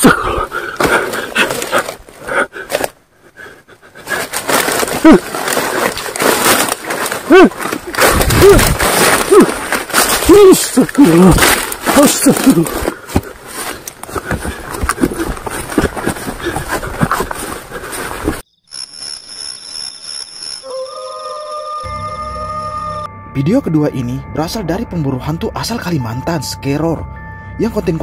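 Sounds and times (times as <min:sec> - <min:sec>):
rustling through dry leaves: 0:04.0 - 0:18.4.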